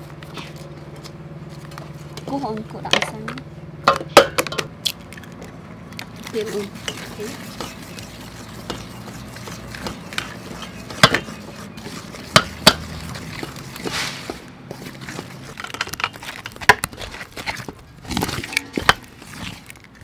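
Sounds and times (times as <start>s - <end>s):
eggs cracked against metal bowl: 2.9s - 7.9s, 8.6s - 13.9s
wooden spoon stirring in metal bowl: 5.3s - 20.0s.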